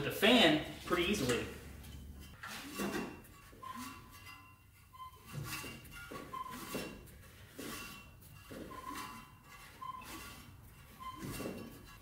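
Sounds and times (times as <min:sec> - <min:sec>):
brief high squeaks: 0:02.5 - 0:04.2, 0:04.9 - 0:06.9, 0:08.6 - 0:11.6.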